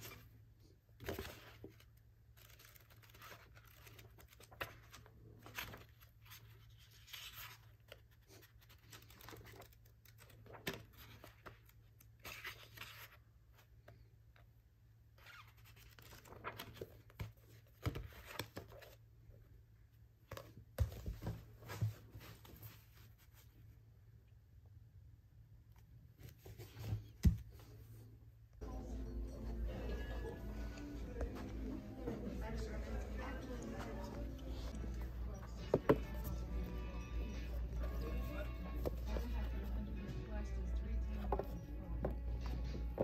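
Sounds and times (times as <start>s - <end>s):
paper rustling and crinkling: 0.0s - 13.8s, 15.4s - 19.0s, 32.5s - 40.0s.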